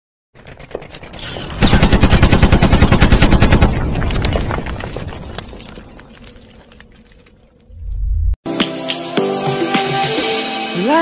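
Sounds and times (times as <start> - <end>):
rumble with scattered cracks: 0.4 - 8.3
machine-gun fire: 1.6 - 4.2.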